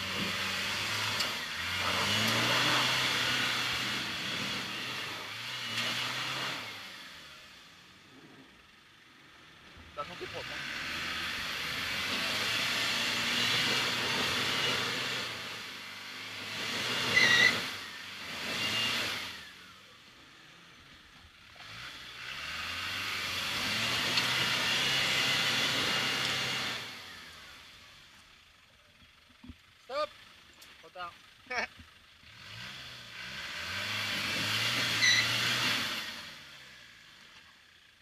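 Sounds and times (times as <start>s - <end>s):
diesel engine revving: 0.0s - 28.2s, 30.0s - 37.8s
sharp squeal: 17.1s - 17.8s, 34.9s - 35.4s.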